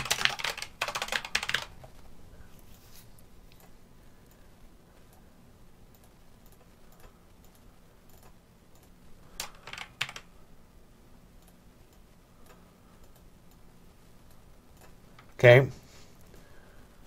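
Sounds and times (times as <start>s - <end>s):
computer keyboard clicks: 0.0s - 1.7s, 5.9s - 10.3s
faint low hum: 0.0s - 17.0s.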